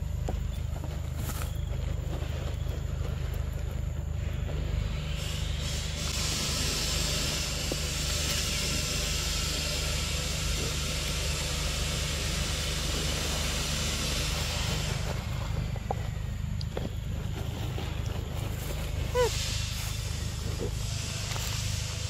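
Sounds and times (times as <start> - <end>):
loud high hiss: 5.1 - 15.4.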